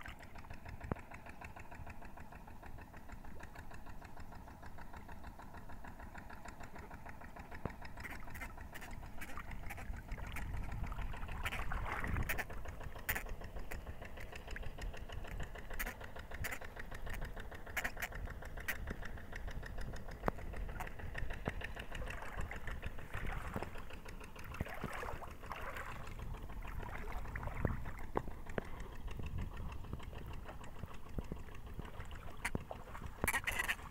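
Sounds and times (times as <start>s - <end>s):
engine running with ticking: 0.0s - 33.9s.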